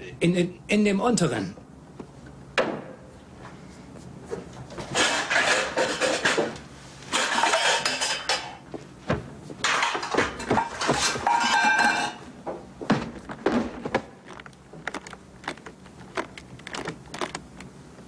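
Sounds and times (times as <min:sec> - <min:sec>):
things clattering in a cupboard: 0:04.4 - 0:15.6.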